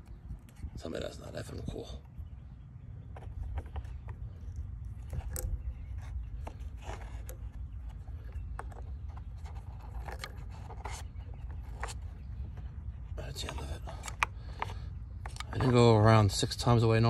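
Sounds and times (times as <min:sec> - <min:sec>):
tape scraping on pipe threads: 0:03.2 - 0:16.1.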